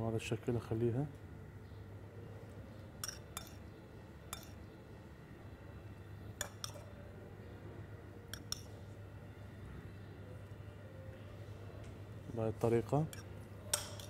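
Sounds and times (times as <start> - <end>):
faint room hum: 0.0 - 14.0
metal spoon clinking on dishes: 3.0 - 3.7, 4.3 - 4.6, 6.4 - 7.0, 8.3 - 8.8, 13.0 - 14.0.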